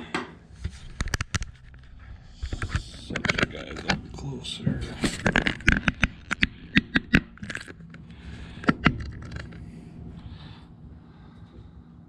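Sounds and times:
wooden pieces knocking together: 0:05.0 - 0:07.8.

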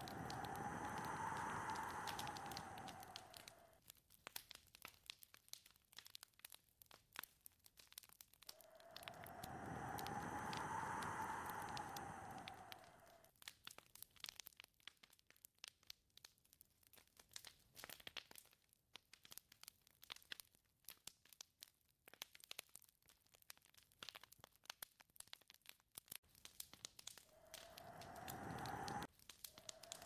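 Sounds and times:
wind gust: 0:00.0 - 0:03.7, 0:08.6 - 0:13.2, 0:27.3 - 0:30.0.

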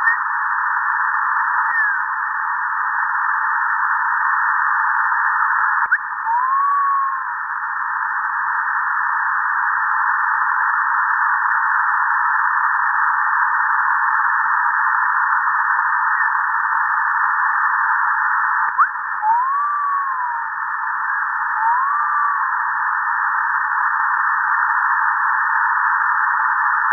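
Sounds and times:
shortwave radio static hiss: 0:00.0 - 0:26.9
rising and falling radio whistle: 0:05.0 - 0:09.0, 0:18.0 - 0:25.2.

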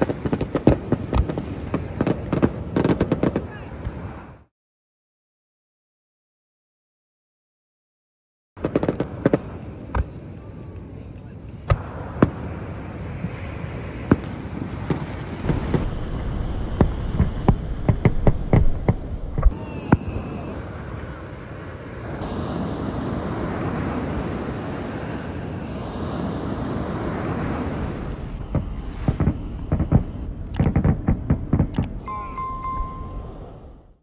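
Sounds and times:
distant fireworks bursting: 0:00.0 - 0:04.2, 0:08.6 - 0:10.9, 0:11.5 - 0:32.0
wind: 0:00.0 - 0:04.5, 0:08.6 - 0:34.0
ocean surf: 0:03.4 - 0:04.5, 0:09.1 - 0:30.4, 0:31.9 - 0:33.9
sharp clicks and pops: 0:29.2 - 0:32.0.

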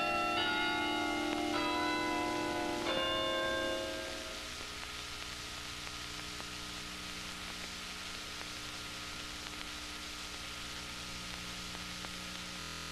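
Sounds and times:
steady hiss: 0:00.0 - 0:12.9
faint clicks: 0:09.4 - 0:10.5.

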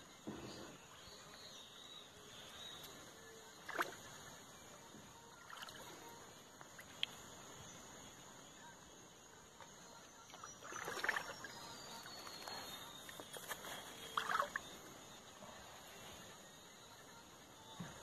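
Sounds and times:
small splashes: 0:03.6 - 0:04.4, 0:05.3 - 0:07.2, 0:10.3 - 0:14.8
shallow water sloshing: 0:10.3 - 0:14.8.

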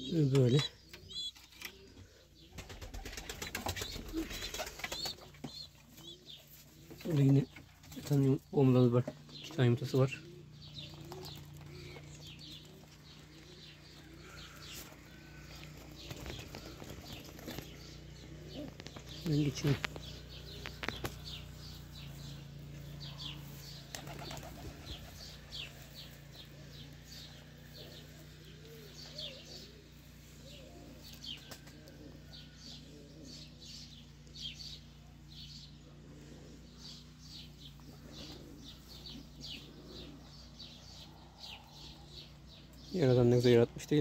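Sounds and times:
pigeons cooing: 0:00.0 - 0:44.0
steady low hum: 0:01.9 - 0:42.8
wing flaps: 0:02.5 - 0:05.4, 0:15.7 - 0:17.8, 0:23.8 - 0:25.8.

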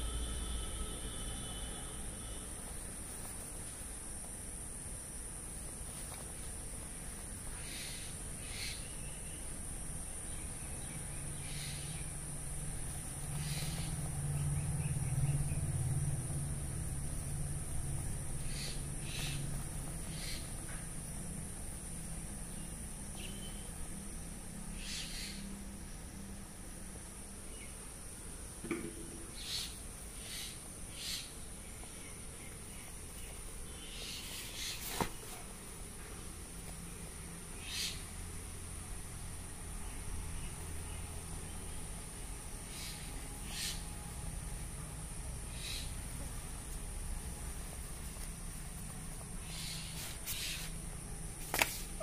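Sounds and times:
high-pitched whine: 0:00.0 - 0:03.0
steady high hiss: 0:00.0 - 0:52.0
low hum: 0:09.3 - 0:24.6.

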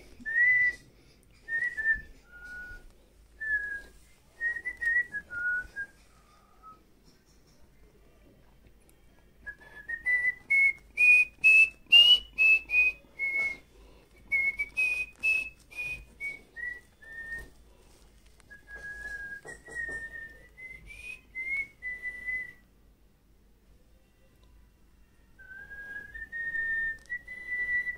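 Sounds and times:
person whistling a slow melody: 0:00.2 - 0:06.8, 0:09.4 - 0:17.5, 0:18.5 - 0:22.7, 0:25.4 - 0:27.9.

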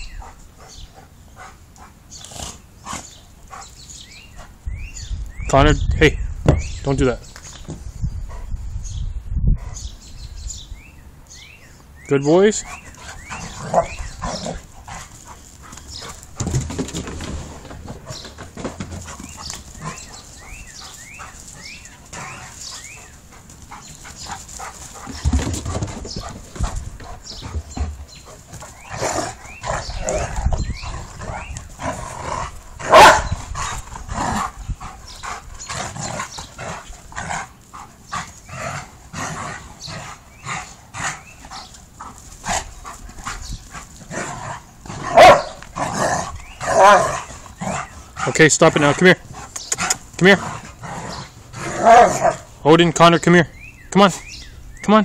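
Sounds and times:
dogs barking while play-fighting: 0:12.8 - 0:16.5, 0:26.6 - 0:48.4, 0:49.4 - 0:52.5.

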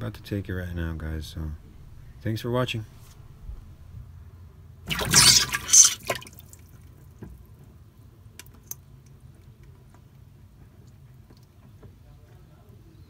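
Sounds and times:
loud water splash: 0:04.9 - 0:06.6.

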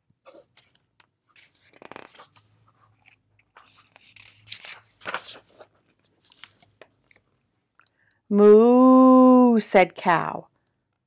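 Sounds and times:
paper pages turning: 0:00.3 - 0:07.4.

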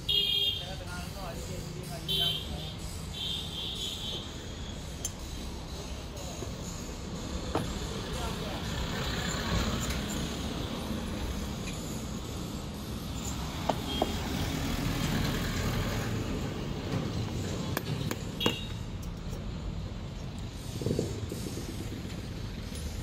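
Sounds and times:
metal parts clicking and clinking: 0:17.7 - 0:19.6.

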